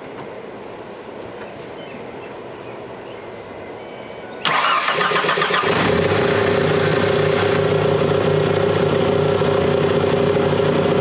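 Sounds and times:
car engine cranking and idling: 0:04.4 - 0:11.0.

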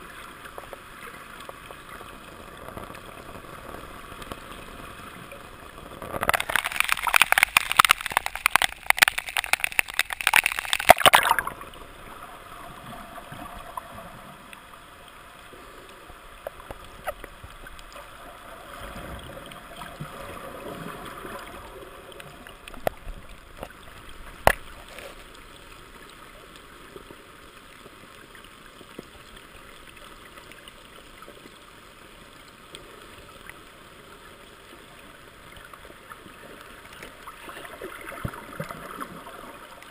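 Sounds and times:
muffled underwater hiss: 0:00.0 - 0:39.9
water splashing and bubbling: 0:00.0 - 0:39.9
underwater clicks: 0:06.0 - 0:11.7, 0:22.2 - 0:25.1.

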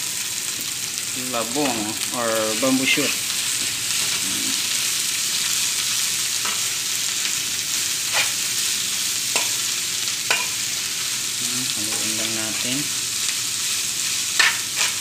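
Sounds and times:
bamboo shoots sizzling in hot oil: 0:00.0 - 0:15.0.

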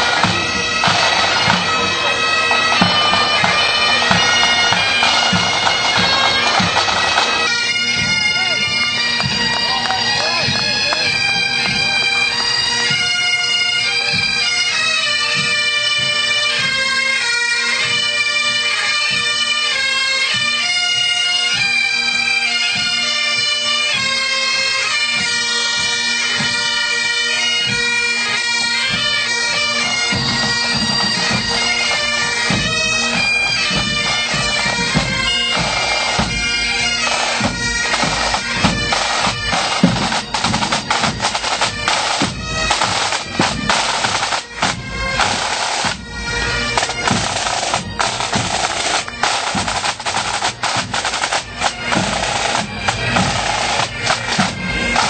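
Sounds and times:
snare drums: 0:00.0 - 0:12.0, 0:28.9 - 0:55.0
bagpipes playing: 0:00.0 - 0:55.0.

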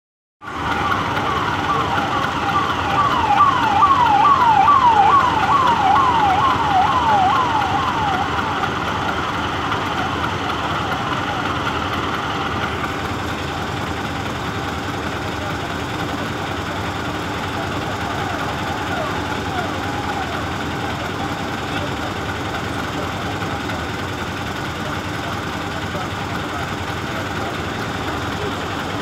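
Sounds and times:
vehicle siren falling sweep: 0:00.4 - 0:11.6, 0:16.0 - 0:22.7
road traffic noise: 0:00.4 - 0:29.0.

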